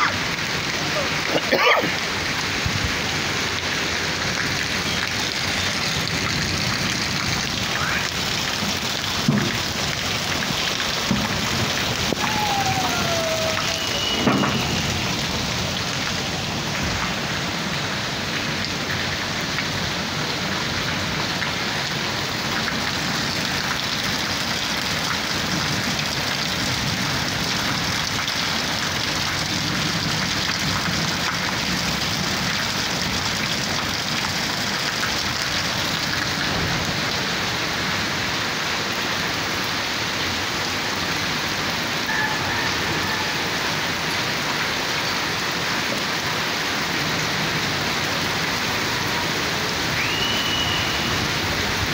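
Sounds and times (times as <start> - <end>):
rain on concrete and rooftops: 0.0 - 51.9.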